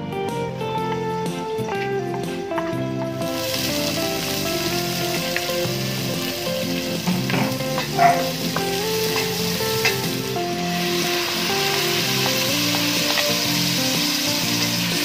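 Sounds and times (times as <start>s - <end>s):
garlic and onion sizzling in oil: 0.0s - 15.0s.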